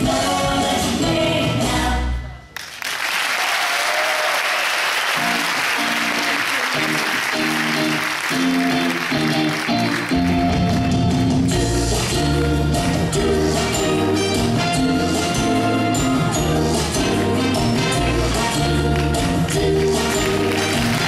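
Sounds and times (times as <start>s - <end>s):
recorded music: 0.0s - 2.4s, 5.2s - 21.0s
audience applause: 2.6s - 11.2s, 18.9s - 21.0s.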